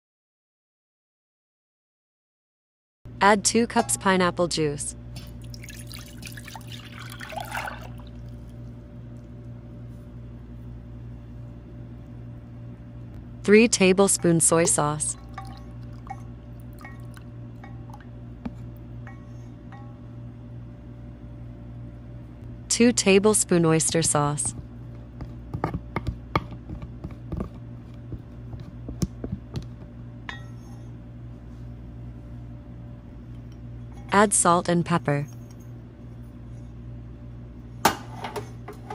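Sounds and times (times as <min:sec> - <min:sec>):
steady low hum: 0:03.1 - 0:38.9
juice pouring into a bowl: 0:05.4 - 0:08.5.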